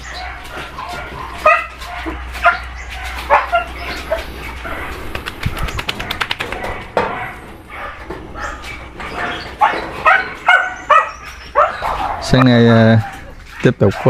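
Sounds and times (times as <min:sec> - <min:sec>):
dogs yipping and barking: 0:00.0 - 0:14.0
quick run of clicks: 0:05.0 - 0:06.9.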